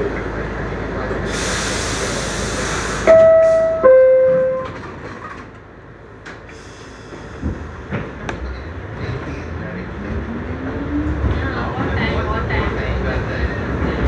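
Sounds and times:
hiss of air: 0:01.3 - 0:03.1
two-tone door chime: 0:03.1 - 0:04.9.

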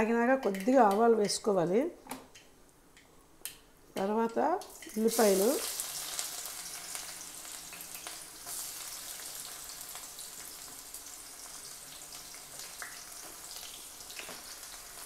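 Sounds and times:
onions sizzling in hot oil: 0:04.6 - 0:15.0.

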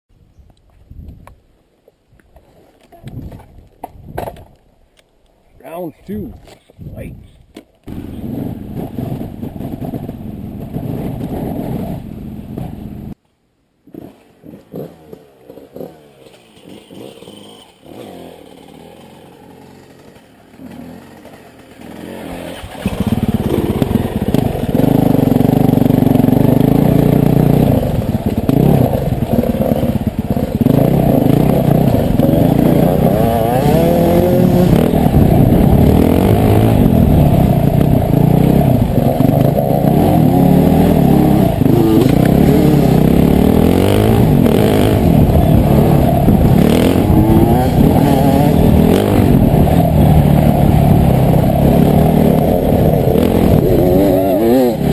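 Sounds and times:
dirt bike engine revving: 0:07.9 - 0:13.2, 0:13.9 - 0:54.9
scattered clatter: 0:07.9 - 0:13.2.

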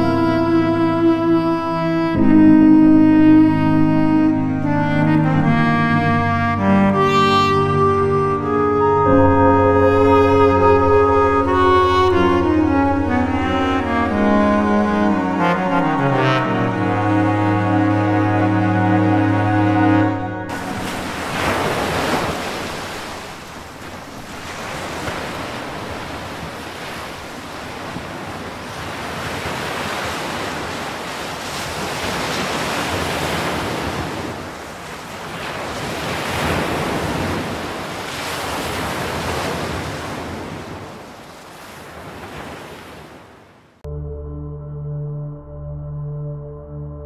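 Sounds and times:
waves breaking on a beach: 0:20.5 - 0:43.8.

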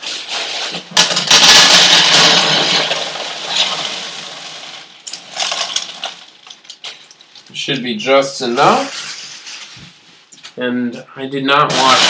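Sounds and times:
pebbles pouring into plastic bed: 0:00.0 - 0:07.4, 0:11.7 - 0:12.0.

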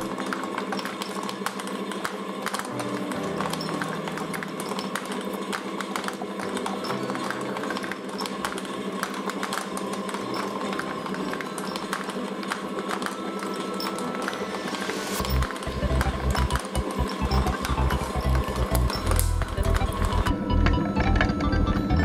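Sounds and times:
light background music: 0:00.0 - 0:22.0
steady hum: 0:00.0 - 0:22.0.

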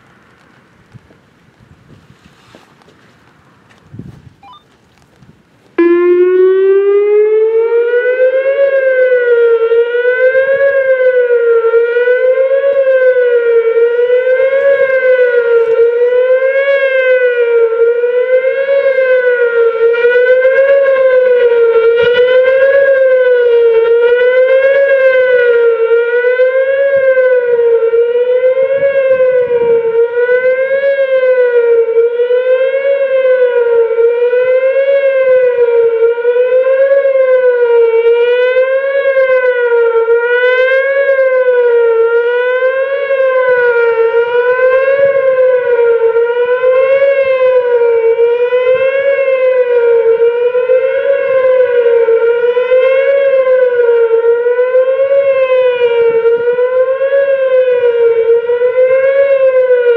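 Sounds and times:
wailing warning siren: 0:03.9 - 0:04.8, 0:05.8 - 0:59.9.

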